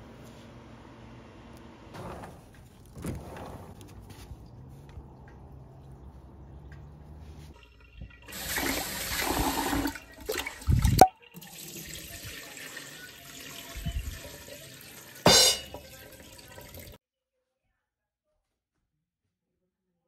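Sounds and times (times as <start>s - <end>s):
water pouring into a sink: 7.5s - 17.0s.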